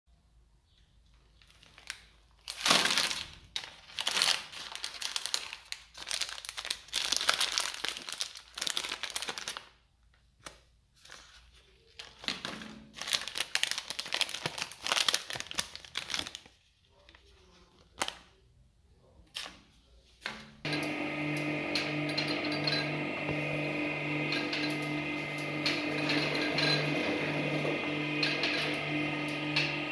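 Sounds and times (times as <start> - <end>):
plastic wrappers crinkling: 1.1 - 18.4
shredder motor humming: 20.7 - 29.9.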